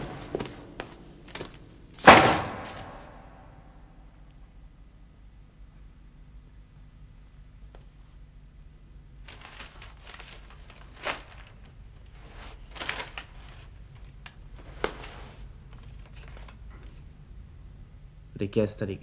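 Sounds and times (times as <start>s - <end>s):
paper rustling on floor: 0.0s - 3.3s, 9.2s - 17.1s
steady low hum: 0.0s - 19.0s.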